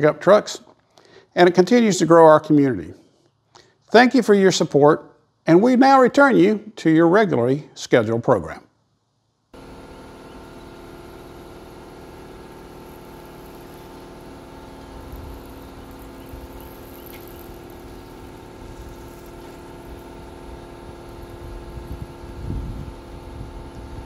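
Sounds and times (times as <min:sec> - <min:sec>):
truck frame rolling on concrete: 0:09.6 - 0:22.4
motor humming: 0:09.6 - 0:24.0.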